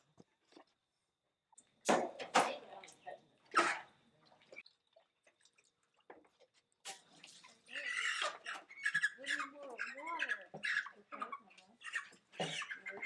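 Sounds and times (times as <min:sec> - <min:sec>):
water splashing in a pot: 0:00.0 - 0:09.7.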